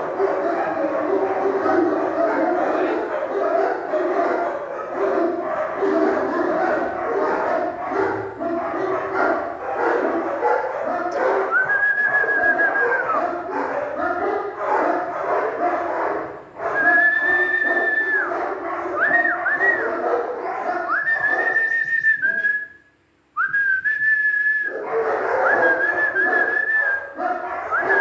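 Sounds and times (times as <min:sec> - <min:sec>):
puppy whining and barking: 0:00.0 - 0:15.9, 0:16.6 - 0:22.4, 0:24.7 - 0:28.0
long whistle notes: 0:11.5 - 0:12.8, 0:21.0 - 0:22.8, 0:23.4 - 0:24.7.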